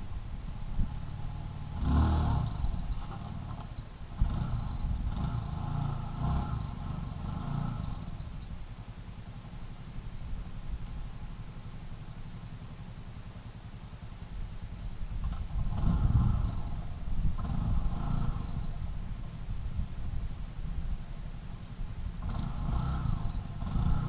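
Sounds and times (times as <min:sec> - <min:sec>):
atv engine running under load: 0:00.0 - 0:24.0.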